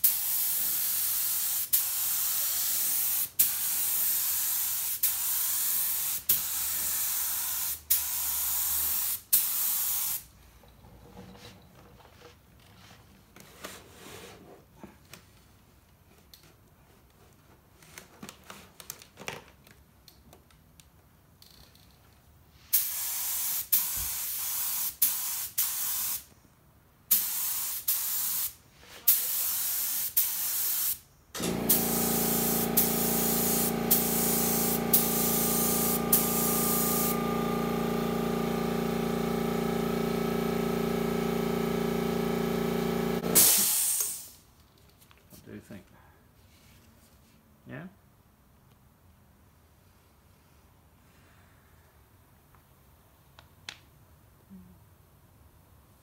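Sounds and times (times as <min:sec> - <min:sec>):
spray gun hissing bursts: 0:00.0 - 0:10.3, 0:22.7 - 0:26.2, 0:27.1 - 0:44.3.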